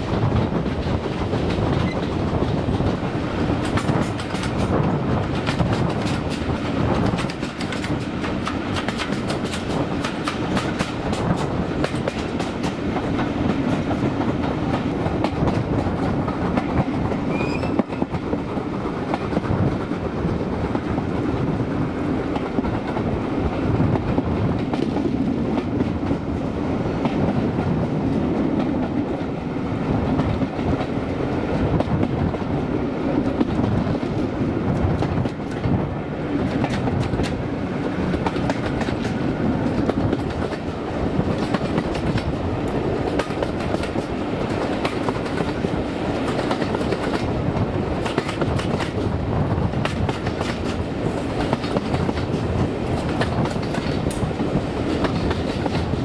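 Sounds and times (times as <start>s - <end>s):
train carriages rumbling: 0.0s - 56.0s
train wheels clicking over rail joints: 0.1s - 20.0s, 34.8s - 56.0s.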